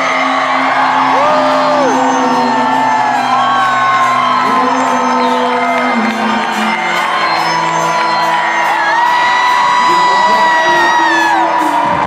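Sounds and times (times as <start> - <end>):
person singing: 0.0 - 7.8
live synth rock band: 0.0 - 12.0.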